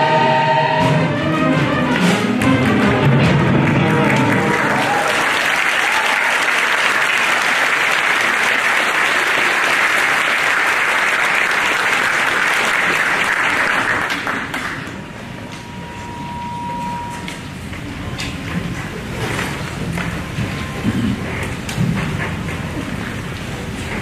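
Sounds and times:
audience applauding: 2.4s - 15.6s.

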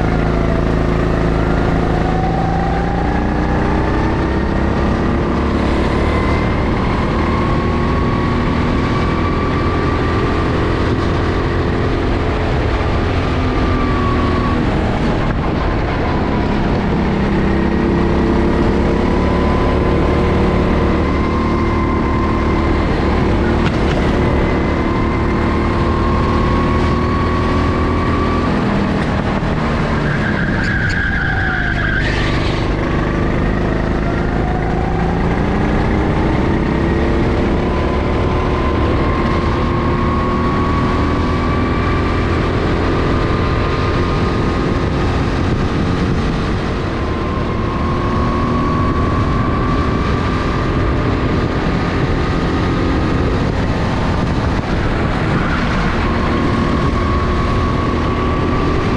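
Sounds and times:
go-kart engine running hard: 0.0s - 58.9s
high squeal: 29.9s - 32.8s.

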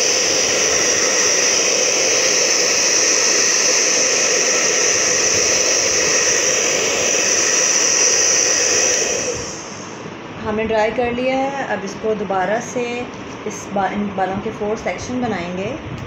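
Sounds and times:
hair dryer blowing: 0.0s - 10.3s.

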